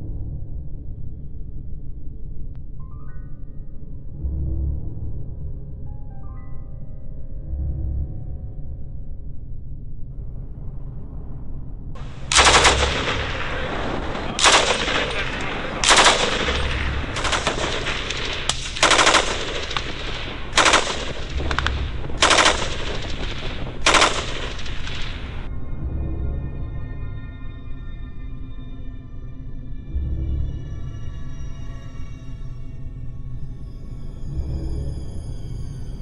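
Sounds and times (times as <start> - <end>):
machine gun bursts: 12.0 - 25.5.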